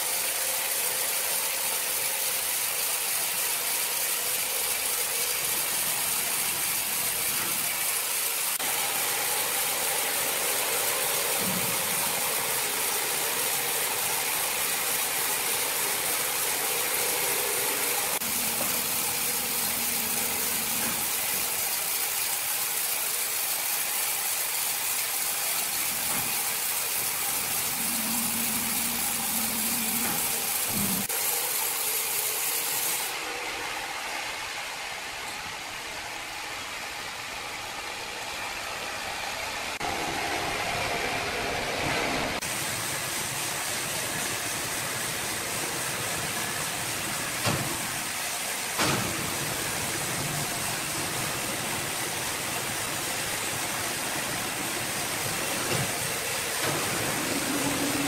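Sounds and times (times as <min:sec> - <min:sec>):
electric motor hum: 0:25.7 - 0:31.1, 0:56.2 - 0:58.0.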